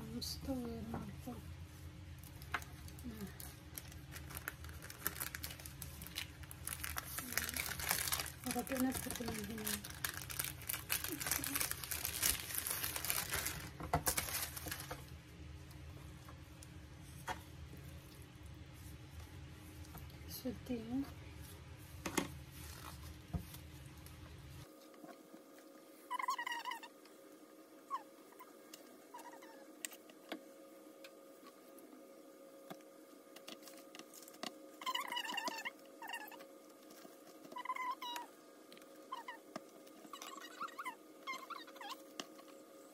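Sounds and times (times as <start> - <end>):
steady hum: 0.0 - 26.1
plastic gloves crinkling: 0.1 - 15.2, 21.3 - 24.7.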